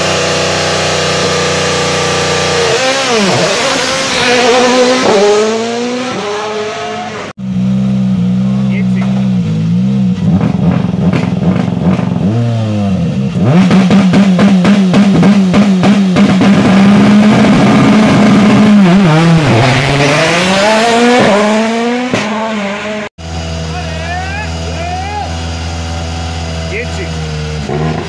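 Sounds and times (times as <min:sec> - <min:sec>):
engine revving: 0:00.0 - 0:28.0
sharp bangs and pops: 0:10.3 - 0:12.2.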